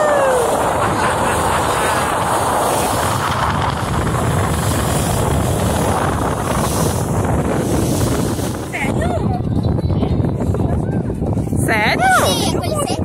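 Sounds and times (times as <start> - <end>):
motorboat engine drone: 0.0 - 10.3
wind buffeting microphone: 0.0 - 13.0.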